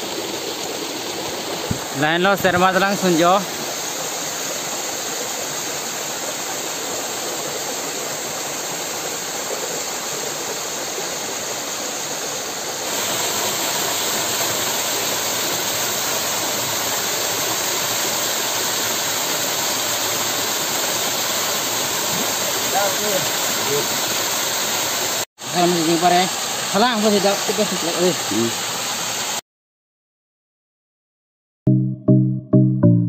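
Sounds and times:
waterfall splashing over rocks: 0.0s - 29.4s.

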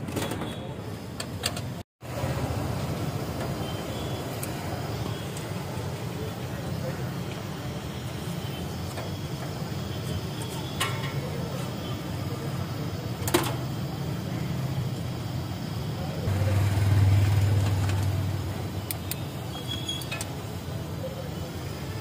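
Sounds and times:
street traffic hum: 0.0s - 22.0s
vehicle engine passing: 16.2s - 18.8s.

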